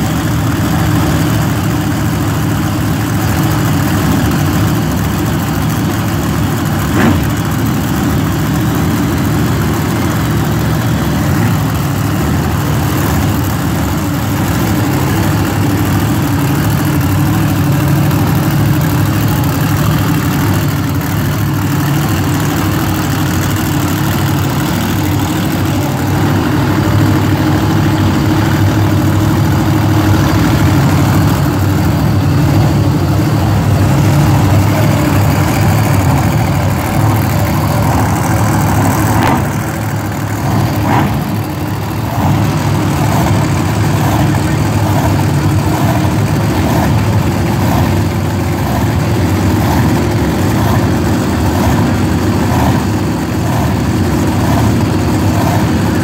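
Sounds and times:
truck engines idling: 0:00.0 - 0:56.0.

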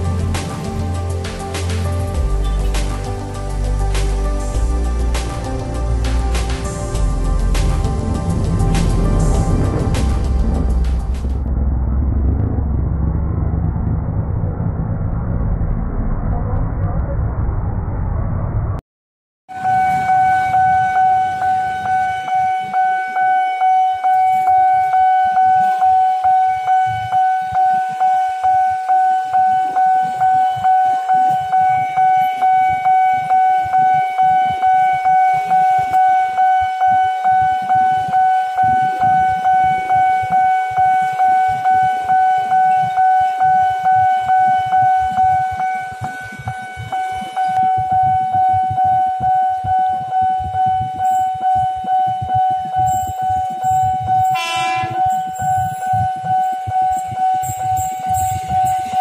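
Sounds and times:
level crossing warning bell: 0:19.5 - 0:59.0.

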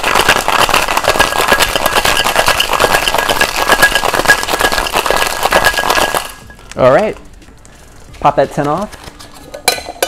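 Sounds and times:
ice rattling in cocktail shaker: 0:00.0 - 0:06.6.

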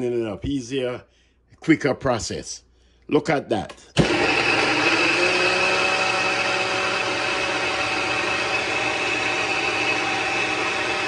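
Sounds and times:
blender motor whining: 0:04.0 - 0:11.0.

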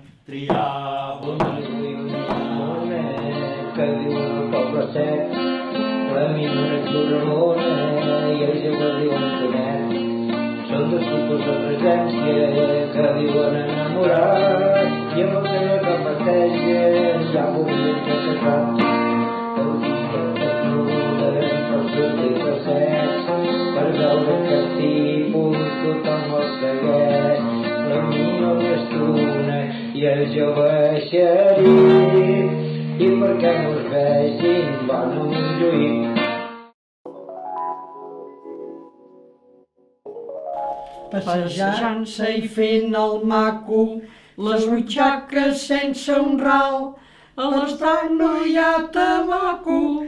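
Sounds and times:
plucked acoustic guitar music: 0:00.0 - 0:06.2, 0:31.6 - 0:33.4, 0:40.1 - 0:41.8.

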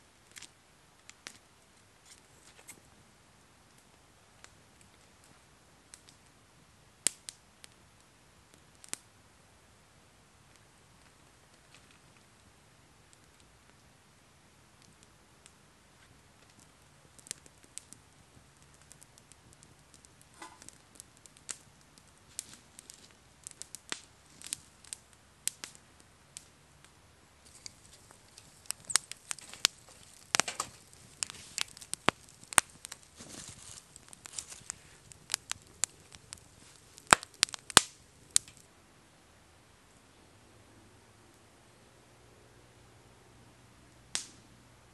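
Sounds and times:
campfire crackling: 0:00.0 - 0:44.9
sharp fire pops: 0:07.0 - 0:07.8, 0:14.8 - 0:38.7, 0:44.1 - 0:44.5.

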